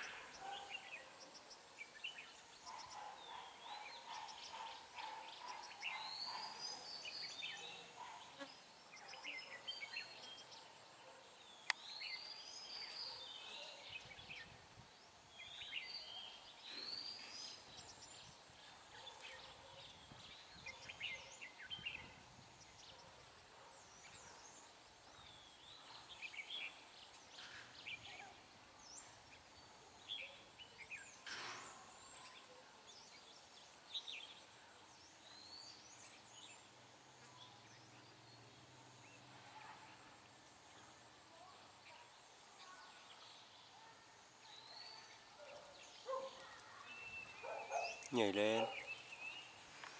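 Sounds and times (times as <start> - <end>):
bird chirps: 1.8 - 10.5, 44.5 - 49.9
birds singing whistled phrases: 44.5 - 49.5.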